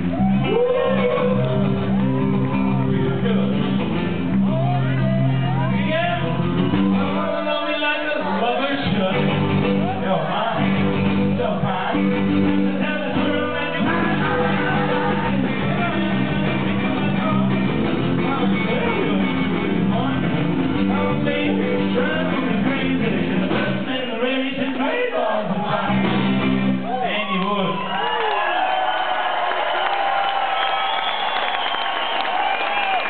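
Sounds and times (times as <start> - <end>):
electric guitar: 0.0 - 7.3, 8.2 - 24.0
drums: 0.0 - 28.1
man singing into a microphone: 6.9 - 26.0.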